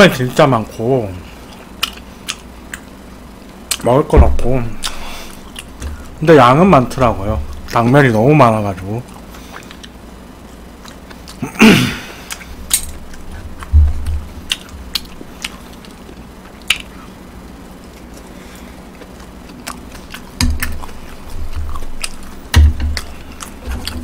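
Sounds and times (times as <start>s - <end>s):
person chewing: 1.4s - 3.9s, 4.6s - 6.2s, 8.8s - 24.0s
dull thumps: 4.1s - 4.8s, 5.8s - 6.2s, 13.5s - 14.9s, 22.4s - 24.0s.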